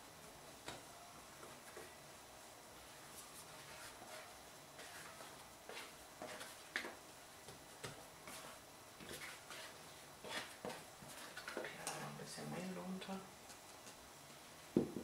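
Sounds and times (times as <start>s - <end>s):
dough scraper scraping: 8.2s - 11.6s.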